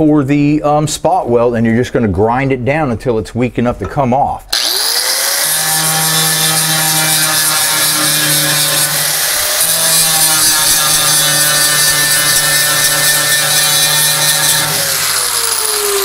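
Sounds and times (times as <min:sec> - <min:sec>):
angle grinder grinding steel: 0:04.5 - 0:16.0.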